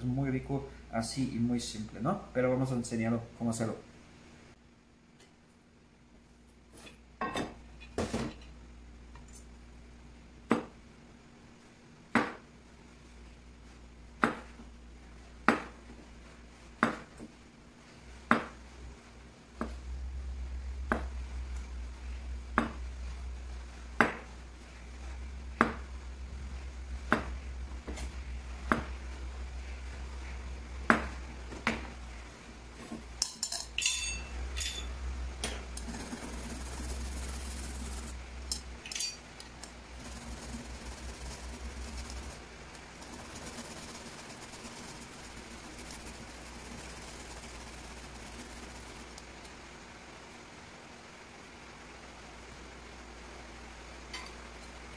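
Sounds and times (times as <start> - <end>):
steady low hum: 0.0 - 54.9
clinks: 33.2 - 34.9.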